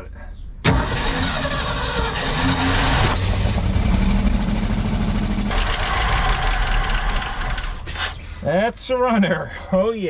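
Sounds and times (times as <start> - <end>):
truck engine running: 0.7 - 8.1.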